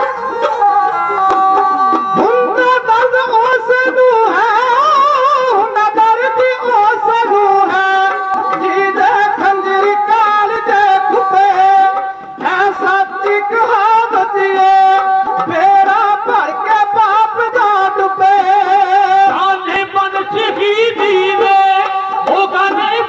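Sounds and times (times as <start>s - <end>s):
men singing: 0.0s - 23.0s
sarangi melody: 0.0s - 23.0s
hand drum beat: 0.4s - 2.6s, 7.0s - 23.0s.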